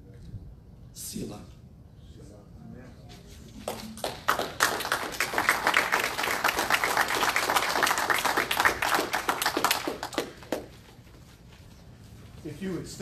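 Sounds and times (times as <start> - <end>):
crowd clapping: 3.6 - 10.9.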